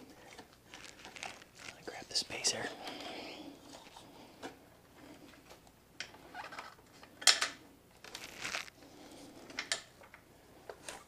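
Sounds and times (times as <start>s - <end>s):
rustling of wiring: 0.0s - 2.2s, 8.0s - 8.8s.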